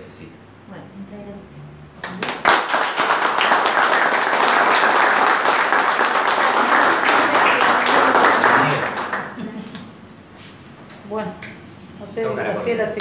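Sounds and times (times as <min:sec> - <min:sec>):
people clapping: 0:02.0 - 0:10.0.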